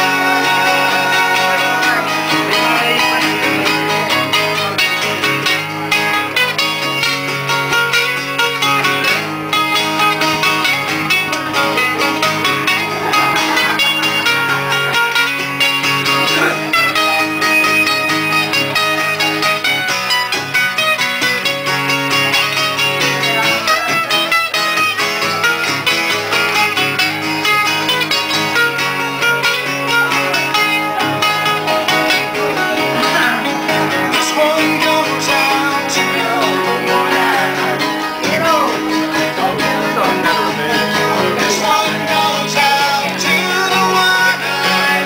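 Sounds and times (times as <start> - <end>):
acoustic guitar strumming: 0.0 - 45.0
string instrument picking lead notes: 0.0 - 45.0.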